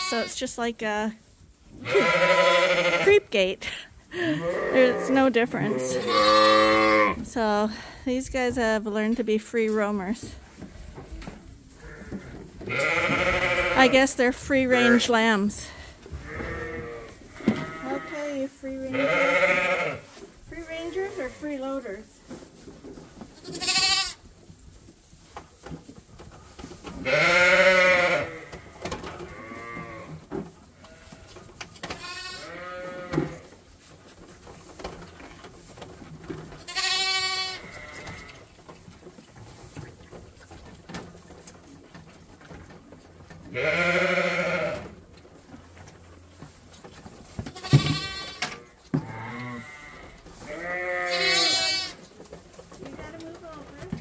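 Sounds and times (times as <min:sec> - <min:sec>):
sheep and lambs bleating: 0:00.0 - 0:00.4, 0:01.8 - 0:03.2, 0:04.1 - 0:07.2, 0:11.8 - 0:15.2, 0:16.2 - 0:20.1, 0:23.4 - 0:24.2, 0:27.0 - 0:30.2, 0:31.9 - 0:33.4, 0:36.6 - 0:38.4, 0:43.5 - 0:45.0, 0:47.5 - 0:52.0.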